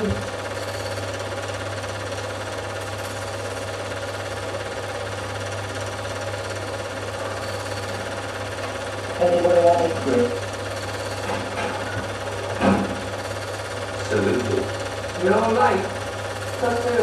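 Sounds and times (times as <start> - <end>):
constant low hum: 0.0 - 2.0
film projector whirring: 0.0 - 17.0.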